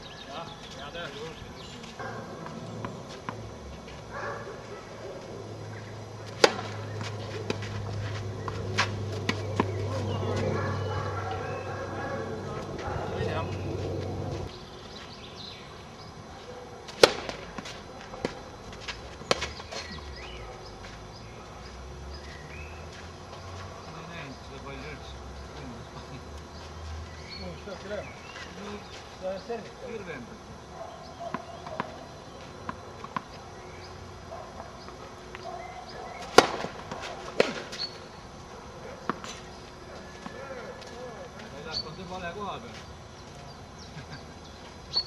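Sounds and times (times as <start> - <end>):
tennis racket hitting ball: 6.2 - 10.6, 16.9 - 18.4, 36.2 - 37.8
ball bouncing on clay court: 6.3 - 11.4, 31.2 - 33.4.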